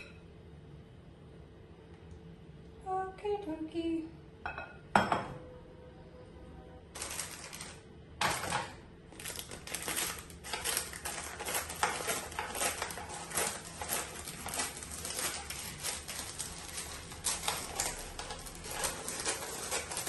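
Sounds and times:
paper crinkling and rustling: 7.0 - 20.0.

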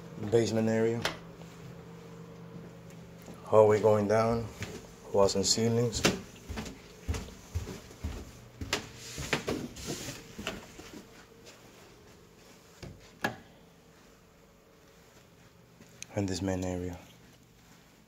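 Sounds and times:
footsteps on carpeted stairs: 4.3 - 13.3.

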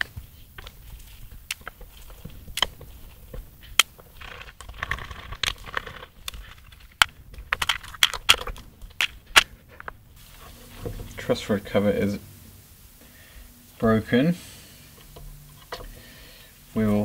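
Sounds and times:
scratchy rasping sound: 0.0 - 11.4
steady hiss: 0.0 - 17.0.

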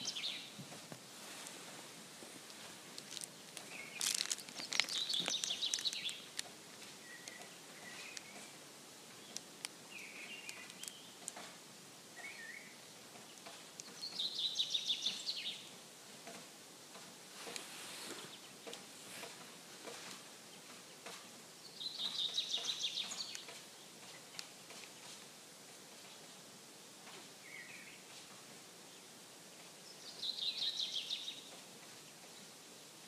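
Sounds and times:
songbirds singing: 0.0 - 0.7, 2.4 - 15.9, 16.9 - 25.3, 27.3 - 33.0
faint steady background noise: 0.0 - 33.0
faint sharp clicks: 2.4 - 8.6, 9.2 - 11.6, 22.0 - 26.2.

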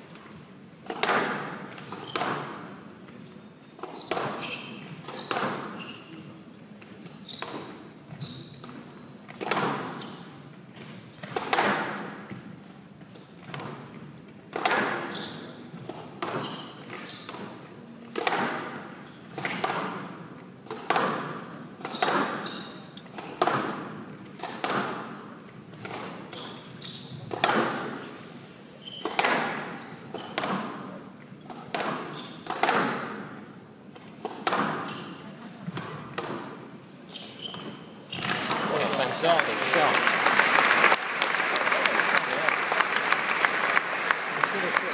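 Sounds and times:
squash ball hits: 0.9 - 2.6, 11.3 - 12.0, 14.5 - 15.1, 18.1 - 18.7, 20.7 - 22.4, 27.3 - 28.0, 29.0 - 29.7, 31.7 - 33.2
shoe squeaks: 1.9 - 6.4, 7.2 - 9.1, 9.8 - 11.4, 15.0 - 15.8, 16.4 - 17.4, 19.0 - 19.4, 21.9 - 23.0, 26.3 - 27.3, 28.7 - 29.2, 30.1 - 30.9, 32.1 - 33.2, 34.4 - 35.2, 37.0 - 38.6.

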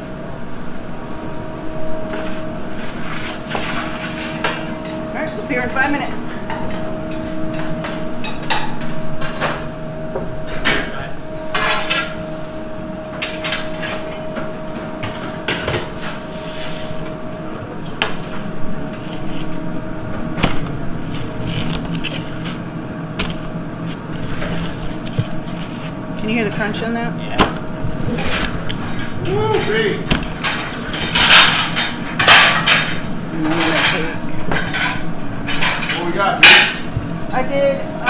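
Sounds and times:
steady hum: 0.0 - 38.0
blade crunching through pizza crust: 20.4 - 22.6, 23.2 - 26.0, 27.6 - 29.0
pans and utensils clinking: 30.4 - 36.8.

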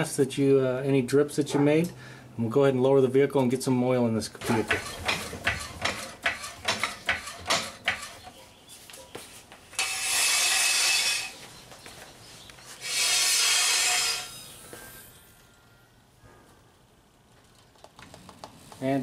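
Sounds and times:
hydraulic jack hissing: 9.8 - 11.4, 12.8 - 15.3.

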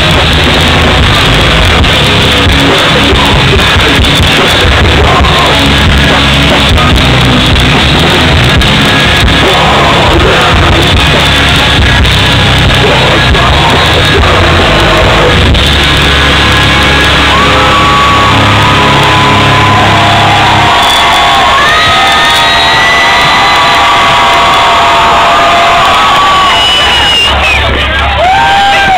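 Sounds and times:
hardcore band playing live: 0.0 - 28.9
screamed vocals: 17.2 - 27.6.

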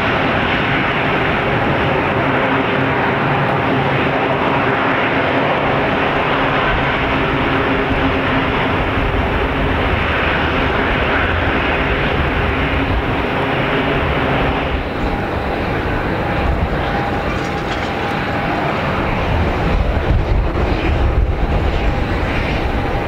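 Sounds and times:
propeller drone: 0.0 - 23.0
airport hum: 12.2 - 23.0.

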